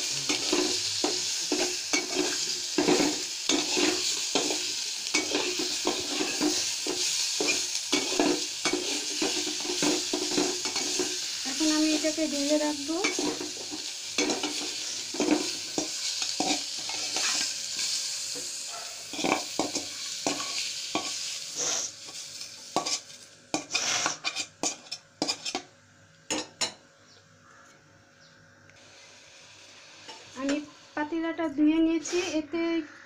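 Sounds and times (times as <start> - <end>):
oil sizzling in pot: 0.0 - 25.7, 28.8 - 31.4
metal spoon scraping pot: 23.6 - 25.6.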